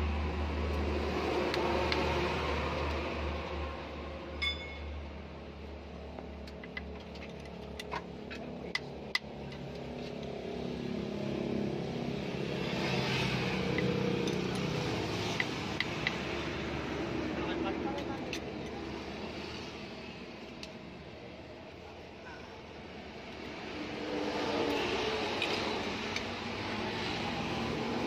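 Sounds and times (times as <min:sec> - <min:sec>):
ringing metallic chink: 0:04.4 - 0:05.0.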